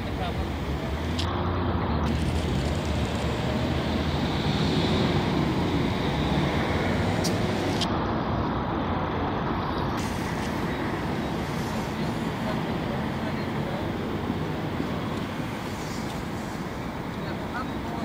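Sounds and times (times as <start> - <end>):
low engine rumble: 0.0 - 18.0
hiss: 10.0 - 10.7, 11.4 - 12.3, 15.6 - 16.8.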